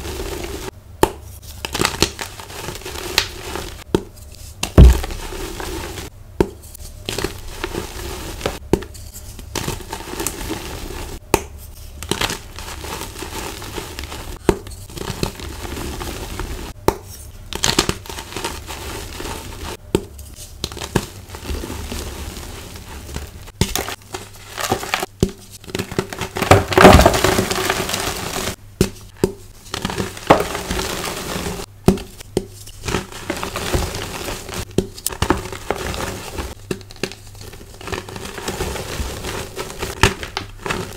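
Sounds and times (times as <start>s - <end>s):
hands crushing chalk blocks: 22.6s - 40.9s.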